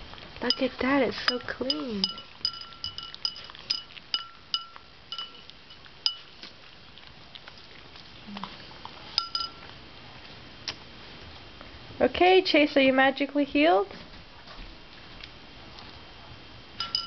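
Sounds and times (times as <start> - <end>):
dog licking a bowl: 0.2 - 9.5
bowl knocking and clinking: 0.5 - 5.4, 9.2 - 9.6, 16.8 - 17.0.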